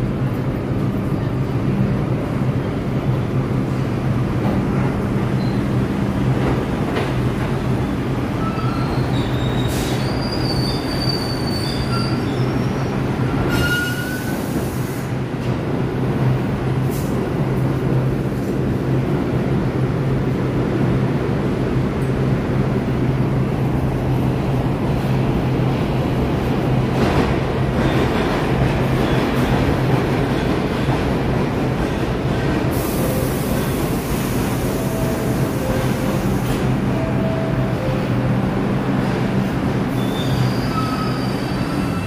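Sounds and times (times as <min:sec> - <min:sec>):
subway trains humming and rumbling: 0:00.0 - 0:42.0
metal wheel squeal: 0:40.0 - 0:42.0.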